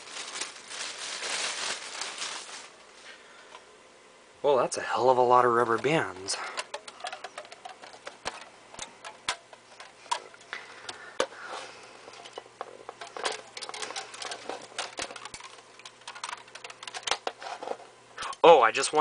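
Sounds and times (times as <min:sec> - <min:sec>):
soft rustling: 0:00.0 - 0:03.3
packages clicking and tapping: 0:05.7 - 0:11.5, 0:12.1 - 0:17.8.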